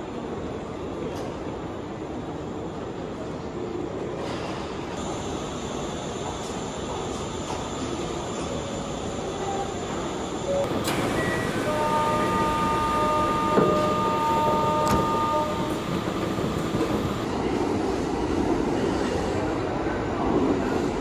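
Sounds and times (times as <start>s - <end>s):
train rumbling: 2.2s - 21.0s
chord of steady tones: 10.7s - 17.2s.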